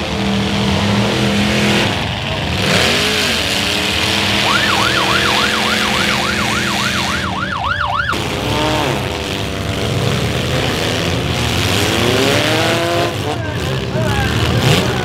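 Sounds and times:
car engines revving: 0.0s - 15.0s
siren yelping: 4.3s - 8.2s.

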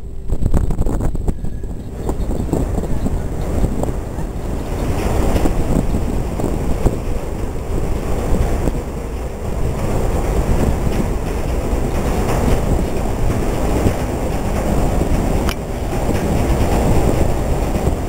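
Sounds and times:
ferry engine rumble: 0.0s - 18.0s
wind buffeting microphone: 0.0s - 18.0s.

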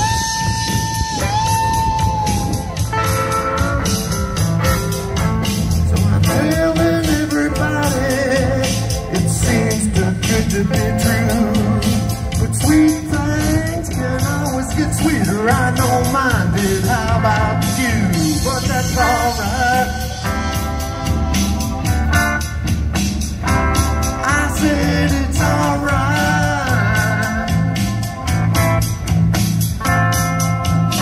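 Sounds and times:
electric guitar: 0.0s - 31.0s
steady bass line: 0.0s - 31.0s
person singing: 5.5s - 22.0s, 24.2s - 28.2s.

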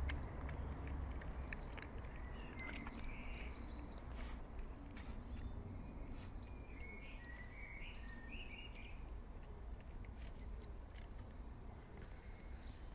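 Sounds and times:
cat chewing wet food: 0.0s - 12.9s
bird chirping: 0.1s - 9.2s.

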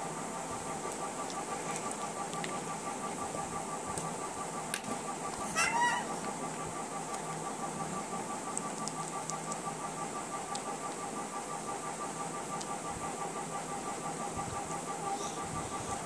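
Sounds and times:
faint pulsing whine: 0.0s - 16.0s
baby squealing: 5.4s - 6.1s.

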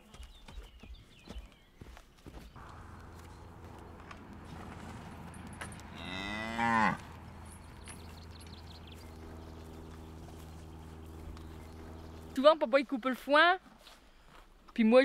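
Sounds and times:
cow mooing: 2.6s - 12.4s.

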